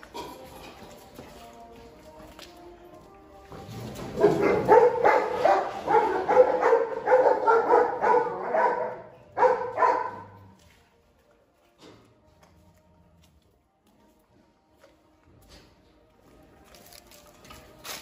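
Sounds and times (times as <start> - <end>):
dog barking rapidly: 4.2 - 10.2.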